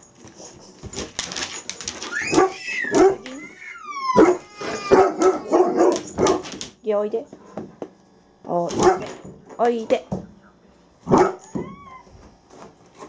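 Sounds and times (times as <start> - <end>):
dog claws on wooden floor: 0.2 - 3.6, 4.2 - 6.8
dog whining and yelping: 2.0 - 6.0, 11.3 - 12.2.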